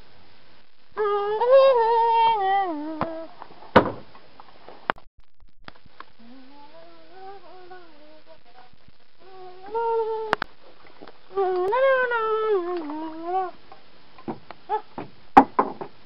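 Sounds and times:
person humming: 1.0 - 3.4, 6.2 - 10.5, 11.3 - 13.6.

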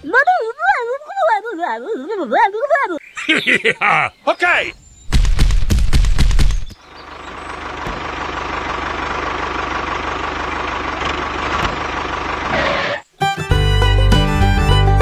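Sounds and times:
tractor engine chugging: 6.2 - 13.0.

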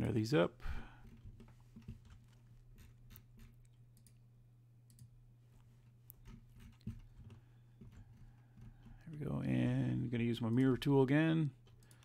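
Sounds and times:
low steady hum: 0.0 - 12.0
faint computer mouse clicks: 4.9 - 5.1.

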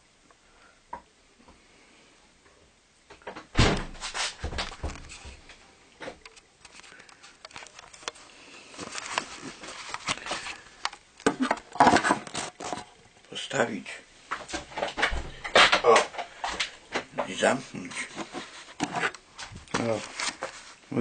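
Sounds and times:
kitchen items clattering: 8.8 - 13.0, 14.4 - 20.7.

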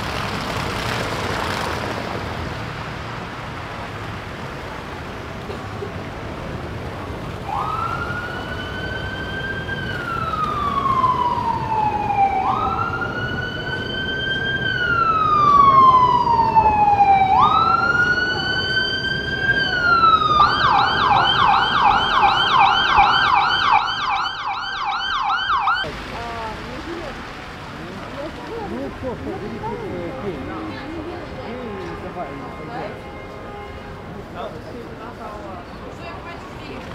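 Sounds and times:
siren wailing: 7.5 - 25.9
siren fast yelp: 14.9 - 25.8.

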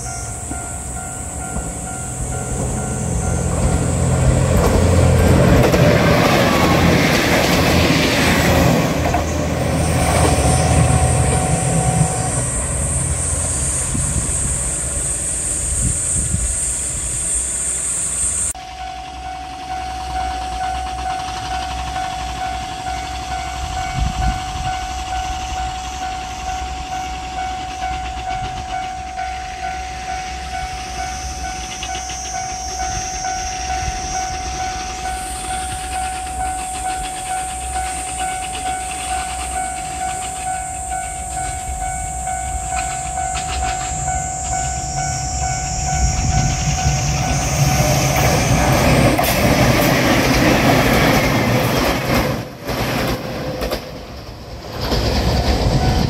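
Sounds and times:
level crossing bell clanging: 0.0 - 7.6, 18.6 - 47.4
diesel railcar approaching: 0.0 - 56.0.

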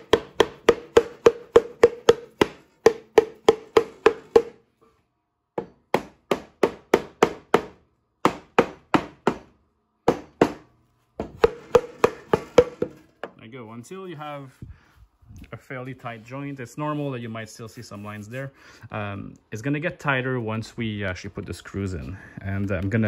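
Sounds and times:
rubber mallet tapping wood: 0.0 - 4.6, 11.2 - 13.0.

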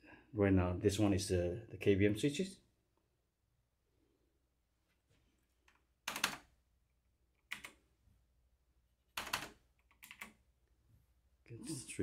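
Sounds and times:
keyboard keys clicking: 5.7 - 6.4, 7.4 - 7.8, 9.2 - 10.4.

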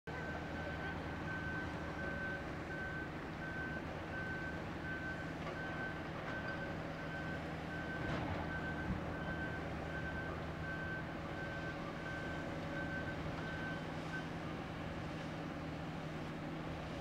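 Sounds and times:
diesel excavators rumbling: 0.1 - 17.0.

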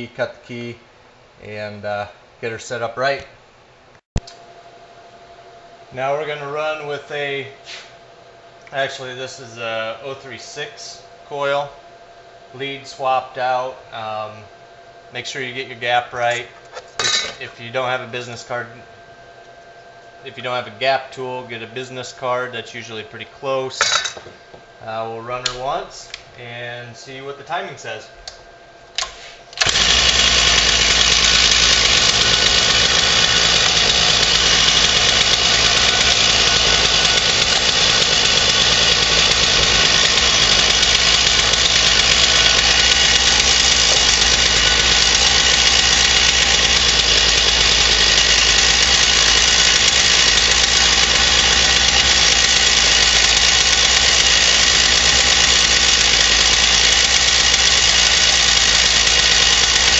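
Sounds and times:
chainsaw engine running: 29.6 - 59.9.

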